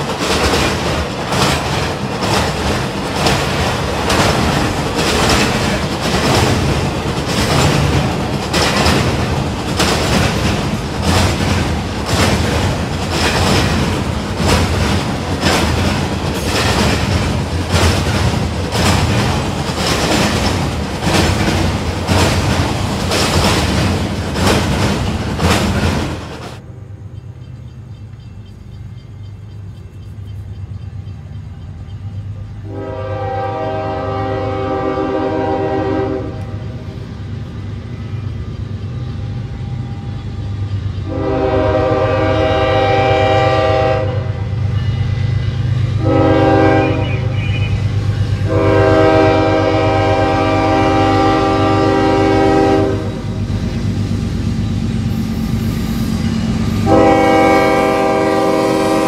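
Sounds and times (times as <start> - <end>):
train wheels clicking over rail joints: 0.0 - 26.6
diesel locomotive horn: 32.6 - 36.9, 41.0 - 53.4, 55.8 - 59.0.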